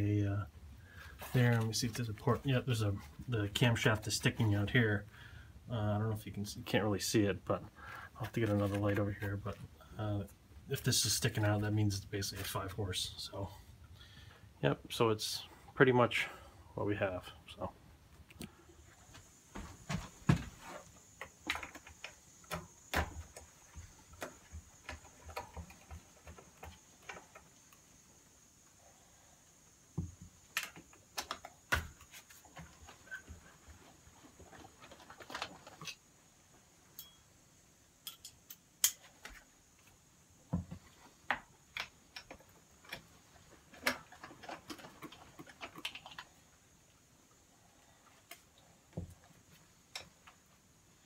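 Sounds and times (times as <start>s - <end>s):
hand tools clicking and knocking: 38.0s - 39.4s.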